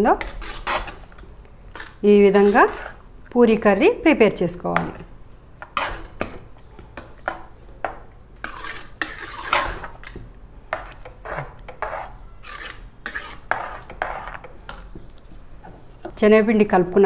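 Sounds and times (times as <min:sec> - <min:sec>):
ladle scraping and clinking pot: 0:00.2 - 0:03.0, 0:05.6 - 0:16.2.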